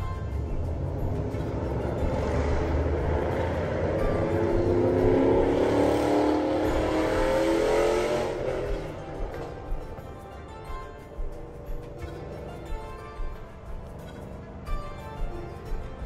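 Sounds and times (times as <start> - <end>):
vehicle driving past: 0.9 - 9.6.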